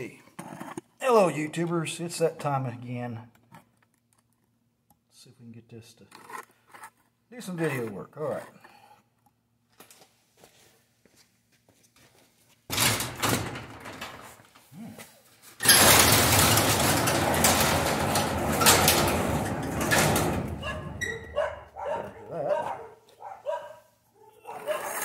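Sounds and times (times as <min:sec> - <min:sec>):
overhead garage door opening: 0:12.7 - 0:14.7, 0:15.4 - 0:22.8
dog barking: 0:20.6 - 0:25.0.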